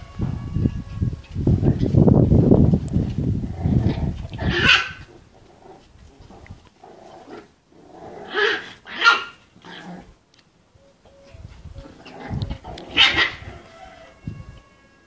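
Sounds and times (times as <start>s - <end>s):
puppies growling: 3.4s - 10.2s, 11.8s - 13.7s
puppies barking and yapping: 3.6s - 7.6s, 8.2s - 10.2s, 10.9s - 14.2s.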